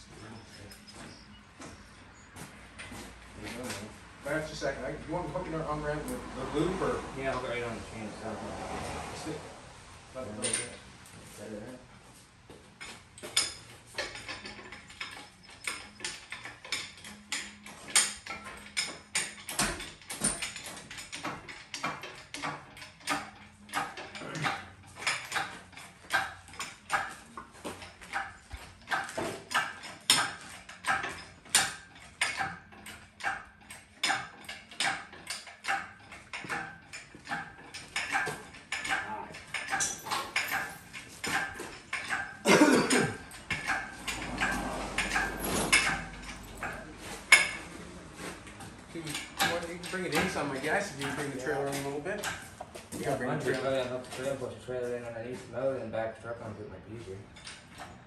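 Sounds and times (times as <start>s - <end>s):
hydraulic hoist handle squeaking and clanking: 0.0s - 2.9s, 12.8s - 47.8s.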